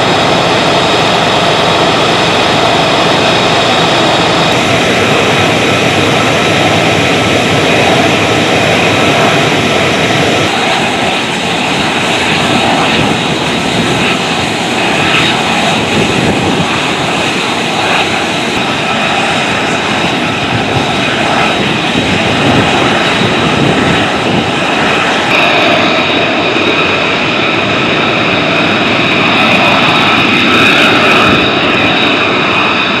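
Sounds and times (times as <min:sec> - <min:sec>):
jet engines idling with whine: 0:00.0 - 0:33.0.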